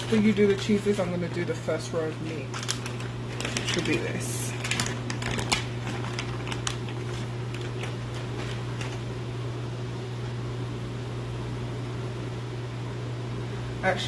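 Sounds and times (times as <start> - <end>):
plastic food packaging rustling: 0.0 - 9.2
low mechanical hum: 0.0 - 14.0.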